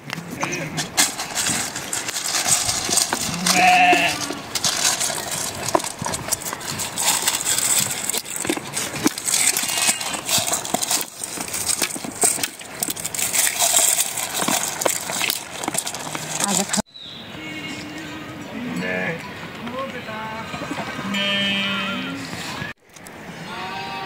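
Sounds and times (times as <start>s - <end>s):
sheep eating grain from metal bowl: 0.0s - 16.9s, 18.8s - 23.2s
sheep bleating: 3.3s - 4.3s, 21.0s - 22.3s, 23.4s - 24.0s.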